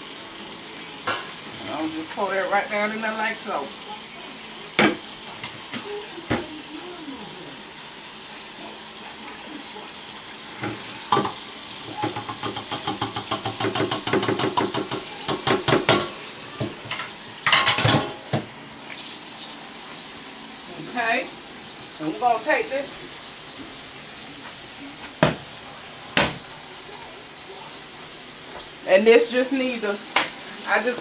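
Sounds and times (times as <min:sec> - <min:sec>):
faucet running into metal sink: 0:00.0 - 0:28.0
metal colander and pot clatter: 0:16.8 - 0:18.2.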